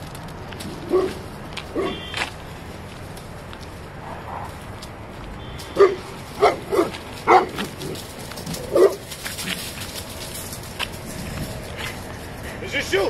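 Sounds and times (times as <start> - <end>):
dog barking aggressively: 0.7 - 2.2, 5.7 - 9.8.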